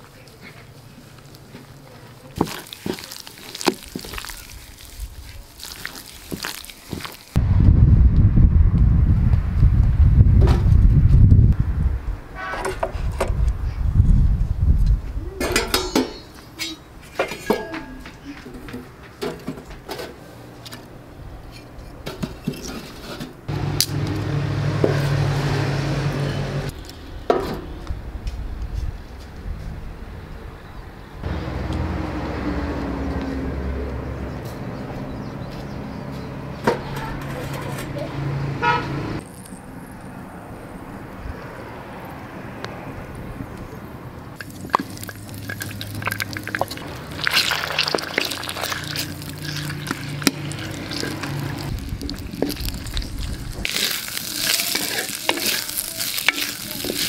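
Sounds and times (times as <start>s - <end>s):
wet squelching of raw chicken: 2.4s - 7.4s, 44.4s - 57.0s
wind rumble on microphone: 7.4s - 15.6s, 27.0s - 30.6s, 51.6s - 53.7s
metal tongs clinking and scraping: 36.8s - 38.1s, 53.6s - 57.0s.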